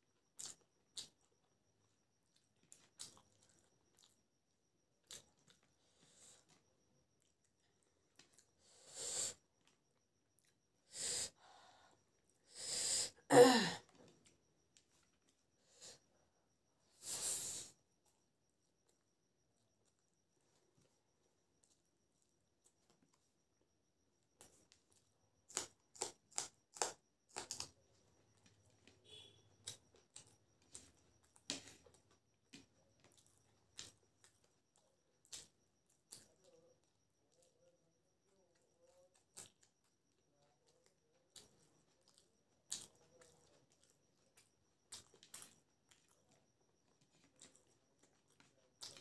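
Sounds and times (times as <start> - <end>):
chilli crunching while chewed: 0.1 - 1.4, 2.2 - 4.3, 24.4 - 34.3, 41.3 - 49.0
woman sighing: 12.8 - 13.9.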